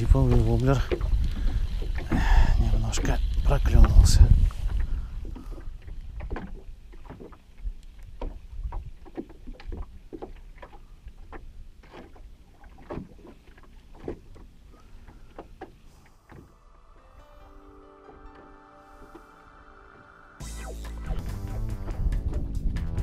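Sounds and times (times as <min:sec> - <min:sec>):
low wind rumble: 0:00.0 - 0:06.3, 0:18.8 - 0:23.0
waves slapping boat hull: 0:00.0 - 0:16.6.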